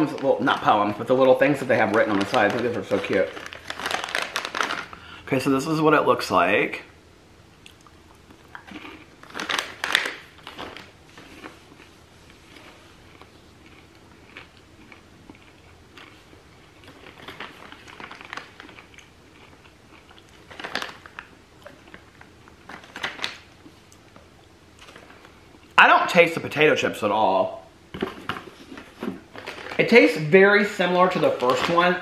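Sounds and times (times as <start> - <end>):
person chewing crunchy snacks: 7.6 - 24.0.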